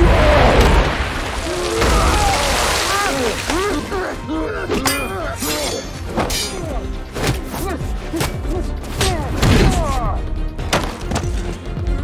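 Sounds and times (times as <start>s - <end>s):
film score music: 0.0s - 12.0s
glass shattering: 1.6s - 3.7s, 4.8s - 6.7s.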